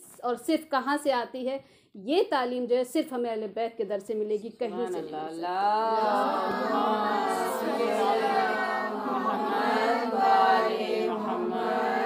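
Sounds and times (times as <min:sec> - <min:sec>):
voices chanting in unison: 0:05.9 - 0:12.0.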